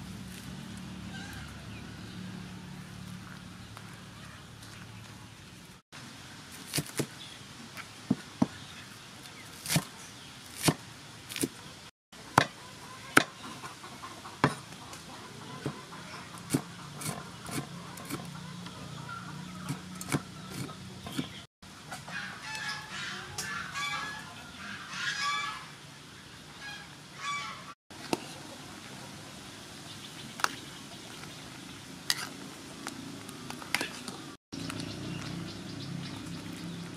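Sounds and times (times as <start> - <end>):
bird calls: 1.0 - 5.6, 12.6 - 21.5
cleaver chopping on wooden board: 16.4 - 18.3.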